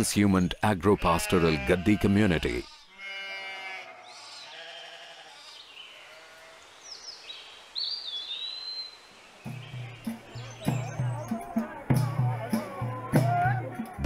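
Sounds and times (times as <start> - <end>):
sheep bleating: 0.8 - 6.6.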